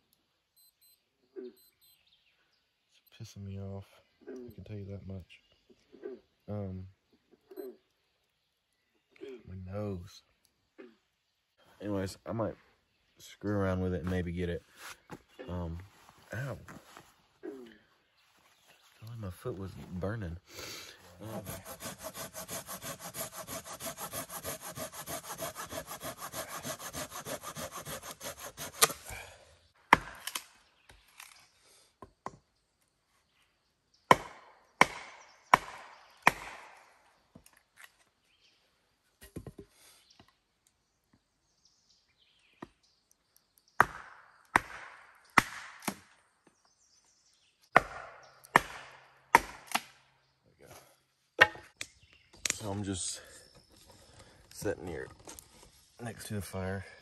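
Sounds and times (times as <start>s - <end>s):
hand saw cutting wood: 21.2s - 29.2s
chopping knocks on wood: 34.1s - 36.6s, 43.8s - 46.0s, 47.8s - 49.7s.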